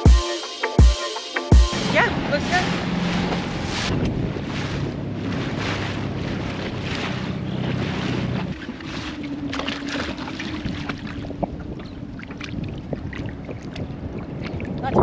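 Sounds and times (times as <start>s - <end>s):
outboard motor running: 1.6s - 15.0s
water lapping against hull: 1.7s - 15.0s
wind on microphone: 1.8s - 15.0s
small knocks and splashes: 3.1s - 15.0s.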